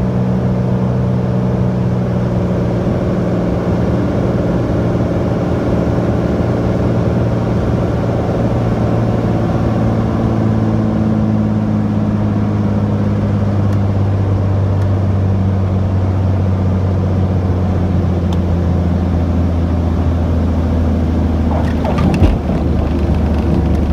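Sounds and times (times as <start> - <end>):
propeller plane engine droning: 0.0 - 23.9
brief clatter: 21.4 - 23.9.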